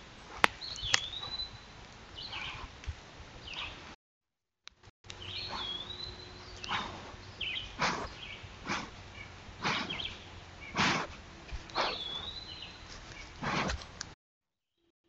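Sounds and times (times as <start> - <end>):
deer sniffing: 0.2 - 1.6, 2.2 - 2.9, 5.2 - 14.2
bird whistling and chirping: 0.6 - 2.6, 5.2 - 10.8, 11.7 - 13.3.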